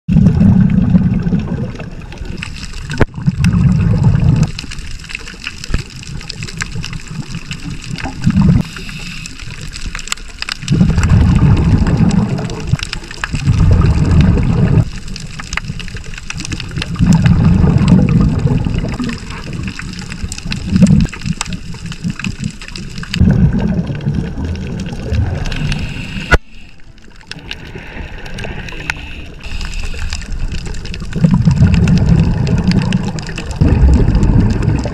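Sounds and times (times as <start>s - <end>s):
underwater exhaled bubbles: 0.1s - 34.9s
steady underwater hiss: 8.5s - 13.3s, 24.3s - 31.0s.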